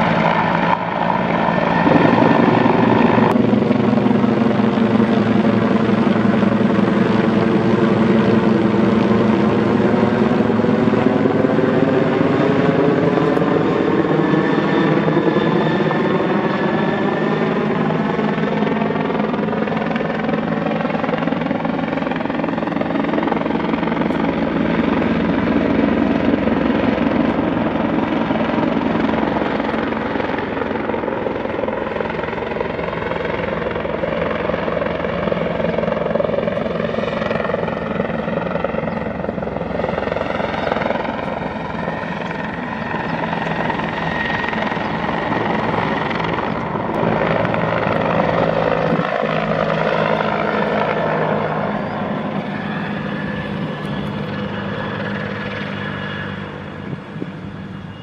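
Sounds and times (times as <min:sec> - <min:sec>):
helicopter flying overhead: 0:00.0 - 0:58.0.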